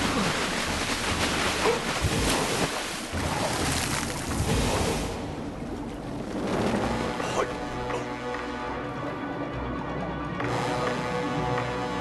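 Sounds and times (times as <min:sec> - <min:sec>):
sea water rushing and splashing: 0:00.0 - 0:09.0.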